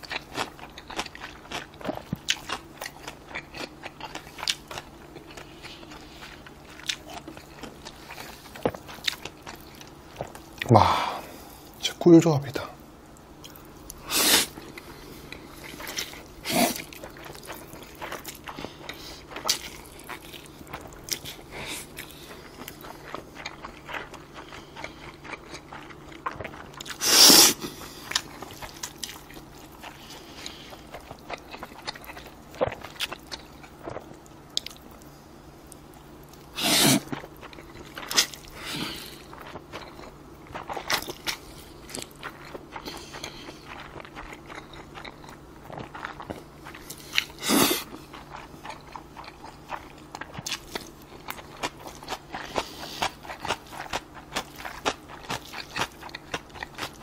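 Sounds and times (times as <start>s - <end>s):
wet chewing: 0.0s - 10.8s, 13.1s - 57.0s
loud noodle slurps: 14.0s - 14.6s, 26.9s - 27.6s, 36.5s - 37.1s, 47.4s - 47.9s.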